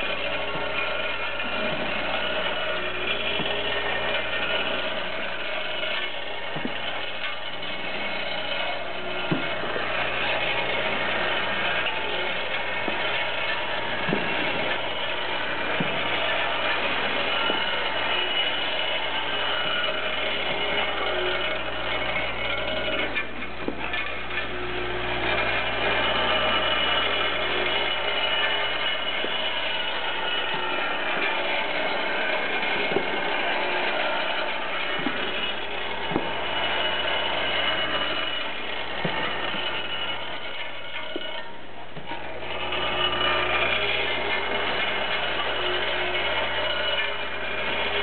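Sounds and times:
short mechanical knocks: 0:00.0 - 0:47.9
feed machine whirring: 0:00.0 - 0:48.0.

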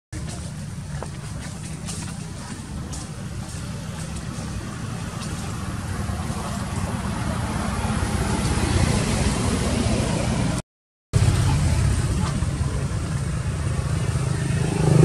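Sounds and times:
low outdoor rumble: 0:00.1 - 0:10.6, 0:11.2 - 0:15.0.

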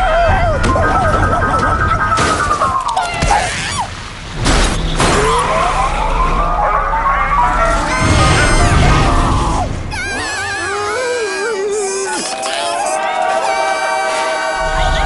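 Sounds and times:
cartoon chase music: 0:00.0 - 0:03.0, 0:05.8 - 0:11.4
low rumble: 0:04.0 - 0:10.2
sudden hit: 0:07.2 - 0:10.0.

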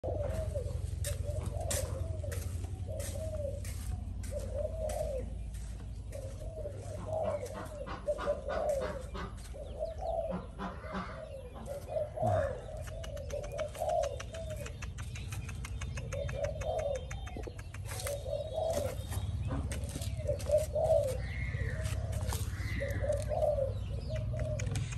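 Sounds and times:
birds calling: 0:00.0 - 0:24.9
sharp clicks: 0:12.9 - 0:17.9.

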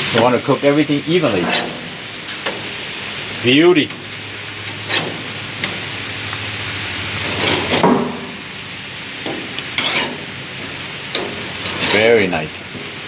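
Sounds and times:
meat sizzling on a grill: 0:00.0 - 0:13.0
metal spatula scraping grates: 0:01.3 - 0:02.0, 0:04.8 - 0:05.8, 0:07.1 - 0:07.8, 0:09.7 - 0:10.4, 0:11.1 - 0:12.4.

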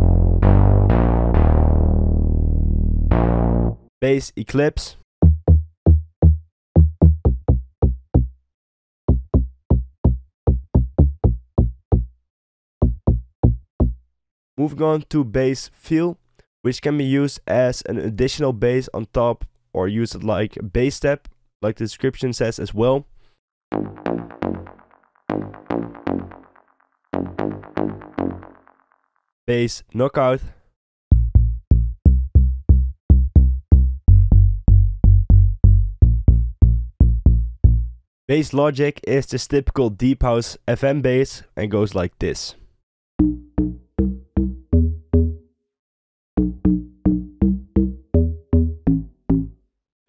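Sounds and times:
synth bassline of plucky notes: 0:00.0 - 0:03.9, 0:05.2 - 0:08.3, 0:23.7 - 0:28.8, 0:31.1 - 0:37.9, 0:43.2 - 0:45.5, 0:46.4 - 0:49.6.

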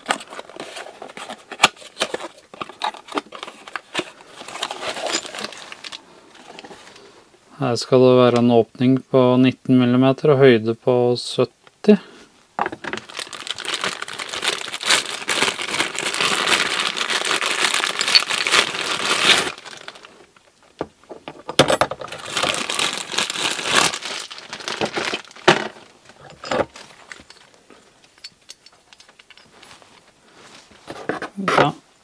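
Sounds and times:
plastic bag crinkling: 0:00.0 - 0:07.0, 0:12.8 - 0:20.5, 0:22.0 - 0:27.6.

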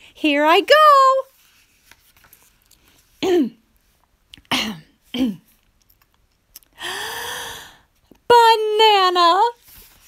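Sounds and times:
woman clearing her throat: 0:04.5 - 0:05.5.

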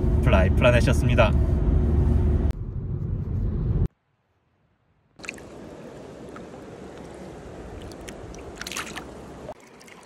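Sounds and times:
river water running over stones: 0:05.2 - 0:10.0
small splashes: 0:05.2 - 0:10.0.

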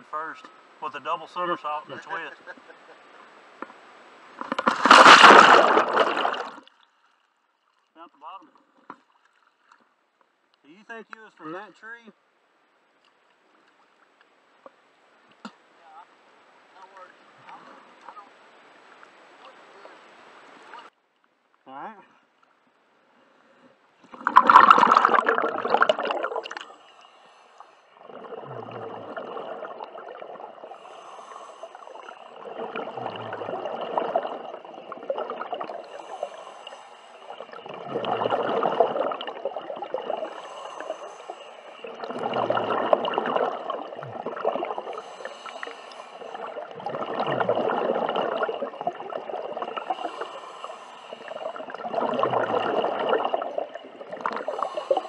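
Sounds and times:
exhaled bubbles gurgling underwater: 0:04.5 - 0:06.7, 0:24.1 - 0:26.8, 0:28.0 - 0:55.0.

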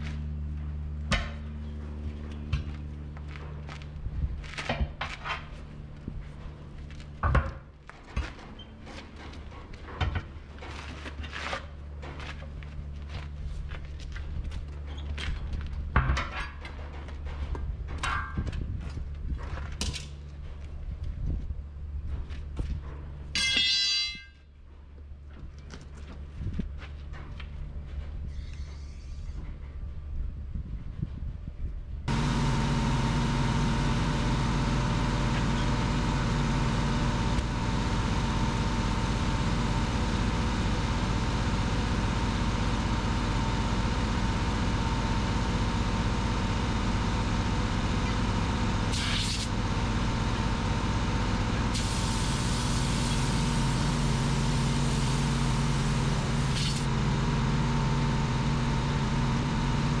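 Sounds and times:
air compressor running: 0:32.1 - 1:00.0.

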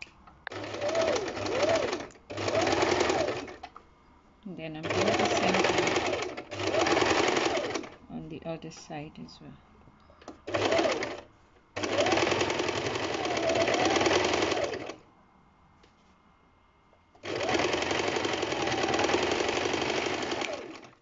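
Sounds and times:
electric sewing machine stitching: 0:00.0 - 0:03.7, 0:04.8 - 0:08.0, 0:10.2 - 0:15.0, 0:17.2 - 0:21.0.

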